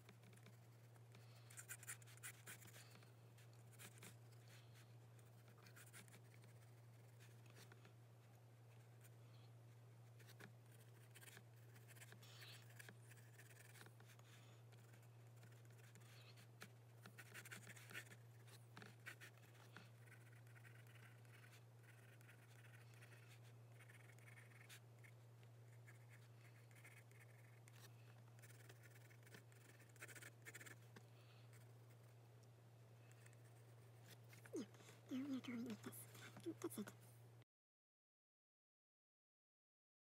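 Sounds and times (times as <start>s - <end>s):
pencil scratching on paper: 1.5s - 3.0s, 3.7s - 4.2s, 5.3s - 7.7s, 10.2s - 14.2s, 14.8s - 24.8s, 25.7s - 30.8s.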